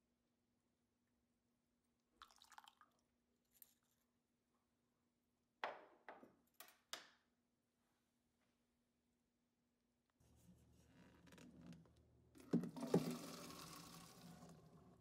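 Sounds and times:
cup clinks and water splashes: 2.2 - 3.0.

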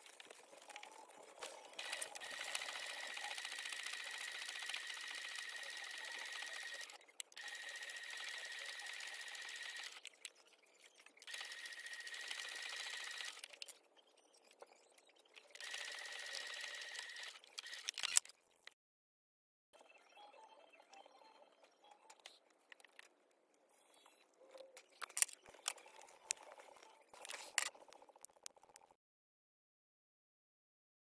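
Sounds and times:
sewing machine stitching: 1.5 - 10.0, 11.2 - 13.5.

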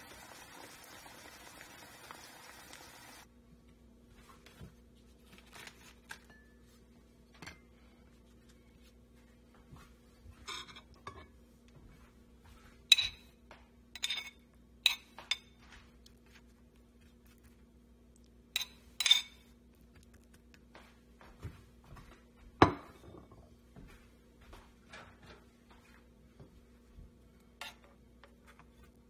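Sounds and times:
metal spoon clinking on plates: 12.9 - 13.3, 14.0 - 15.6, 18.6 - 19.4.

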